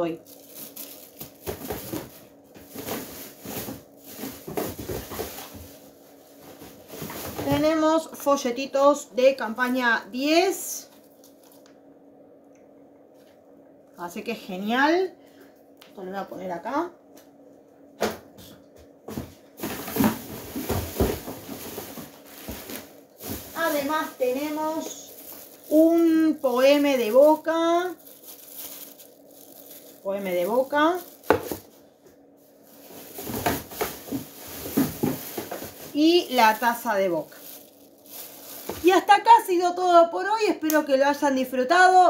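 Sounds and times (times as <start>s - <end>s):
packaging rustling: 0.2s - 7.6s, 10.9s - 11.7s, 19.6s - 39.1s.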